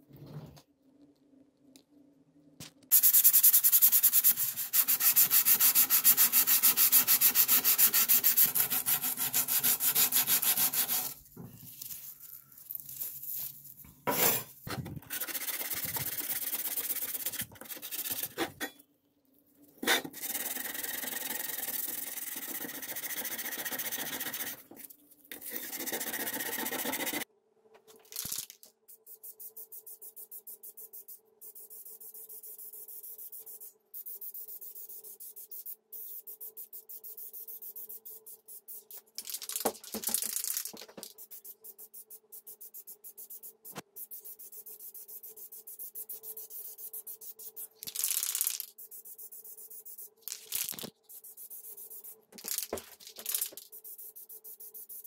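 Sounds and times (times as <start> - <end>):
sanding on rusty metal: 3.0 - 11.2, 15.1 - 18.4, 19.8 - 24.6, 25.4 - 27.2.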